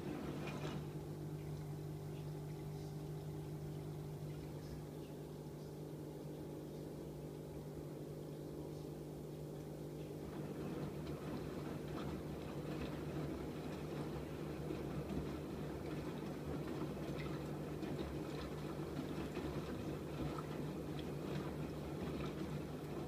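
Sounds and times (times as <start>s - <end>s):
water running into drum: 0.0s - 2.6s, 9.5s - 23.0s
washing machine hum: 0.0s - 23.0s
water and laundry sloshing: 0.0s - 23.0s.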